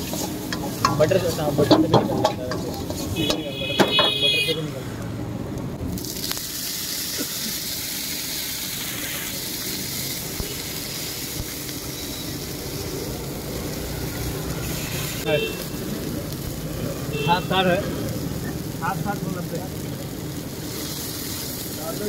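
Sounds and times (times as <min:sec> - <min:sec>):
sizzling hiss: 0:00.0 - 0:05.1, 0:05.8 - 0:22.0
water splashing into hot wok: 0:05.9 - 0:16.6, 0:20.1 - 0:22.0.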